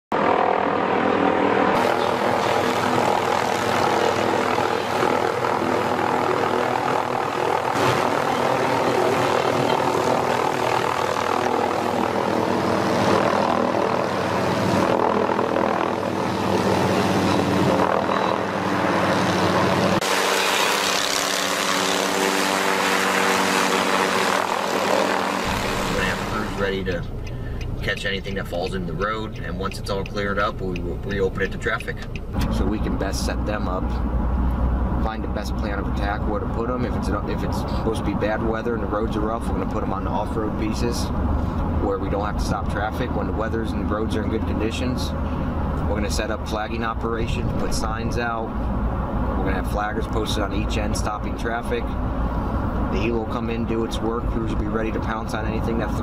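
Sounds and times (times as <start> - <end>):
helicopter rotor and engine: 0.1 - 56.0.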